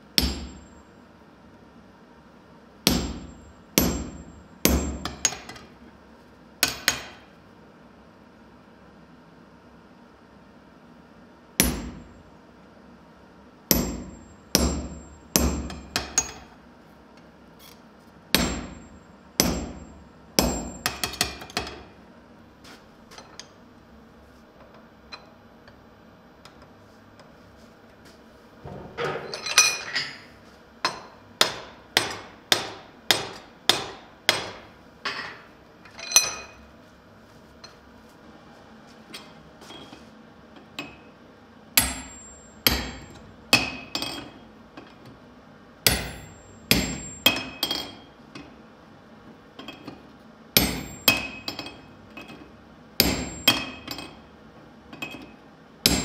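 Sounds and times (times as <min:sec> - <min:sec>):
hammer striking hot steel on anvil: 0:00.2 - 0:00.9, 0:02.9 - 0:05.6, 0:06.6 - 0:07.2, 0:11.6 - 0:12.1, 0:13.7 - 0:16.5, 0:18.3 - 0:21.9, 0:30.9 - 0:34.7, 0:41.8 - 0:44.3, 0:45.9 - 0:48.0, 0:50.6 - 0:51.9, 0:53.0 - 0:54.2.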